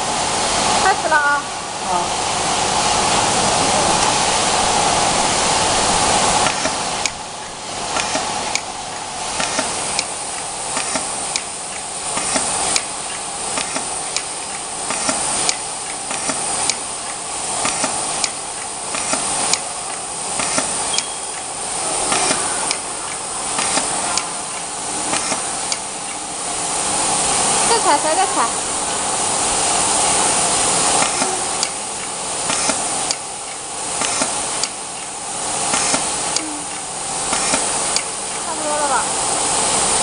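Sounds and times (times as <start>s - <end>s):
loud rushing noise: 0.0s - 15.8s
steady hiss: 0.0s - 40.0s
pneumatic machine clicks and knocks: 6.4s - 7.2s, 7.9s - 26.2s, 30.9s - 38.4s.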